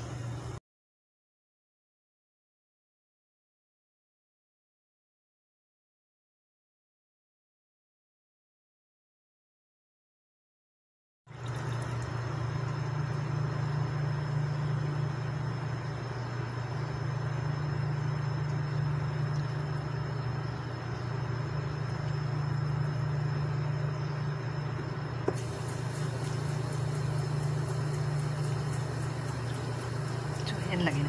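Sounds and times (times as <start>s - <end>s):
tap water pouring into pot: 11.3s - 12.2s.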